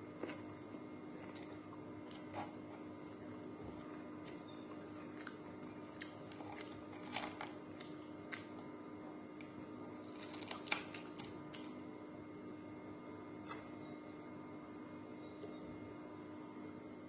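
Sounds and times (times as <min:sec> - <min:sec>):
steady low hum: 0:00.0 - 0:17.0
crunching of fried fish: 0:03.2 - 0:08.7, 0:09.3 - 0:11.8.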